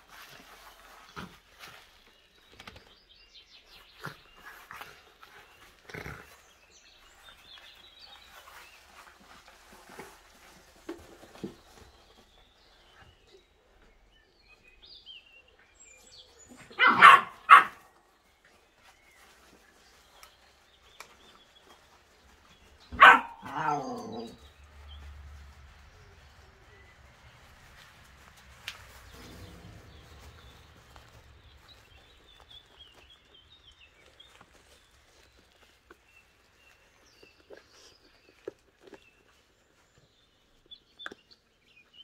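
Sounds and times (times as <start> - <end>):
faint scuffling of puppies: 0.0 - 42.0
puppy barking: 16.7 - 17.8, 22.9 - 24.4.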